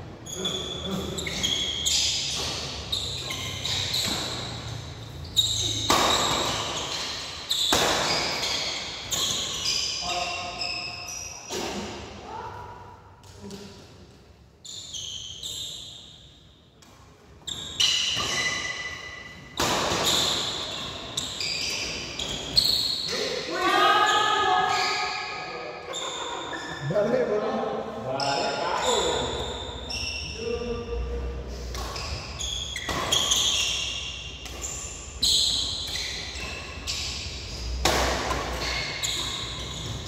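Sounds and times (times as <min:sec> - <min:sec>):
shoes squeaking on court floor: 0:00.2 - 0:12.1, 0:14.6 - 0:26.9, 0:28.2 - 0:40.0
racket striking shuttlecock: 0:05.8 - 0:08.5, 0:37.5 - 0:40.0.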